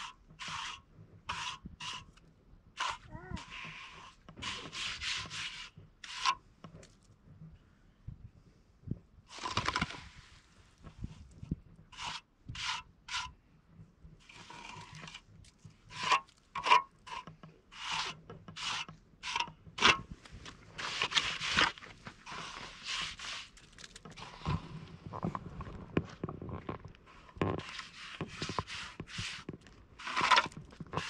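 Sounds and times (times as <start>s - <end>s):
rubbing strokes: 20.7s - 24.6s, 27.6s - 31.0s.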